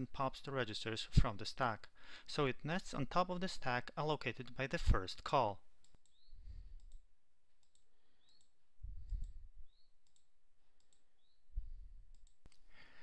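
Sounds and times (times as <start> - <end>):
computer mouse clicks: 5.8 - 11.1, 12.1 - 12.6.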